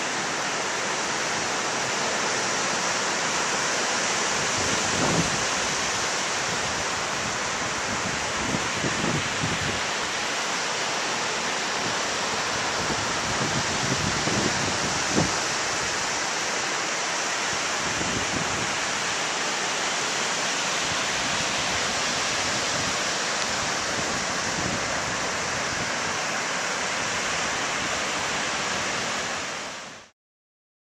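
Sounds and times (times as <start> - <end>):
ocean surf breaking: 0.0 - 29.4
wind buffeting microphone: 4.6 - 5.5.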